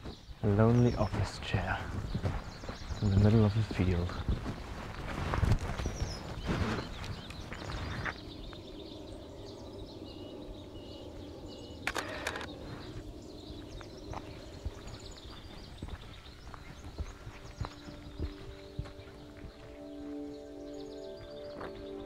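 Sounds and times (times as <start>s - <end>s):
small birds chirping: 0.0s - 22.0s
sharp click: 11.8s - 12.5s.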